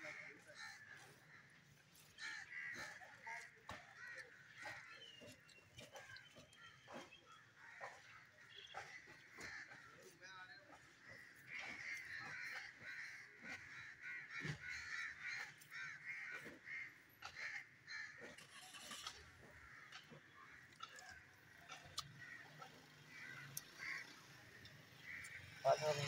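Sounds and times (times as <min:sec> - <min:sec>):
crows cawing: 0:00.0 - 0:05.2, 0:07.6 - 0:10.2, 0:10.8 - 0:26.0.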